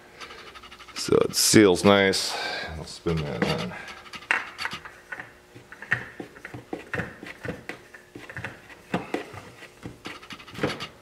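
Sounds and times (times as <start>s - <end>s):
oil filter clicking and scraping: 3.1s - 5.8s.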